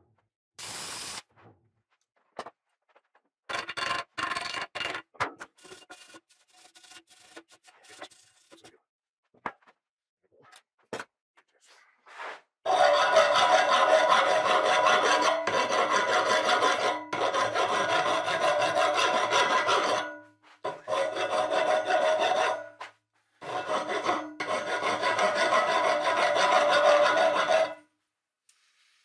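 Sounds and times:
hand file scraping metal rod: 5.6s - 8.6s, 12.7s - 22.8s, 23.4s - 27.8s.

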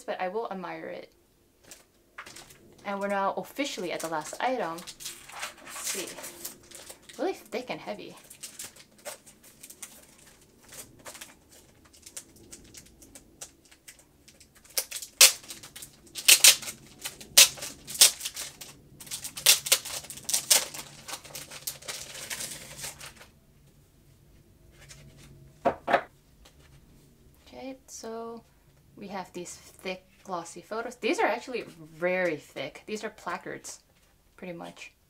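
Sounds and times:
plastic wrapping crinkling: 1.6s - 23.4s.

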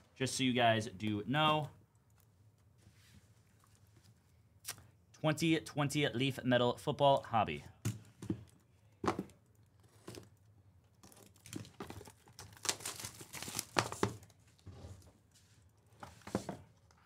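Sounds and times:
wrapper tearing and crinkling: 11.1s - 14.0s.

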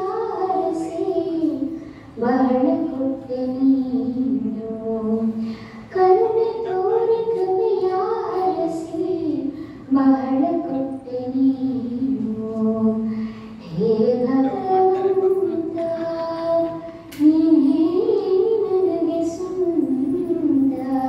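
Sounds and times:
high voice singing slow melody: 10.0s - 21.0s.

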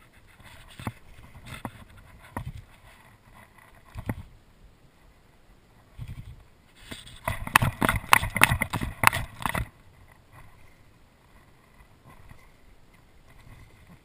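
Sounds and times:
sharp knocks and clacks: 7.3s - 9.7s.

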